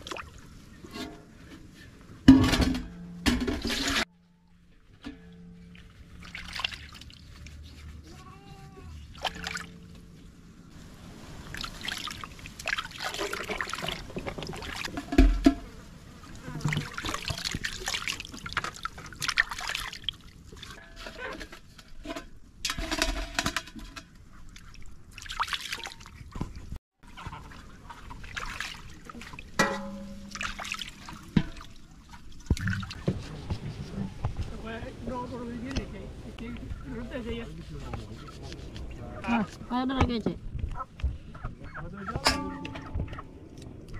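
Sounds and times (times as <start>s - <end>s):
water splashing and dripping: 0.0s - 1.3s, 5.0s - 8.2s, 9.0s - 20.9s, 22.6s - 40.8s
dull thud in metal basin: 2.3s - 4.1s, 29.6s - 30.6s.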